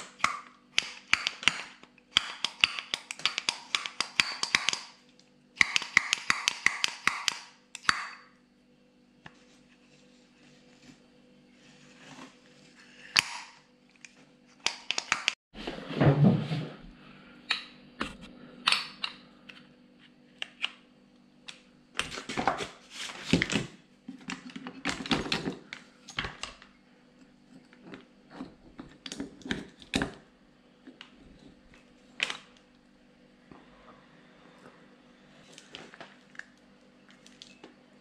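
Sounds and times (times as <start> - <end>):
faint steady hum: 15.6 - 38.0.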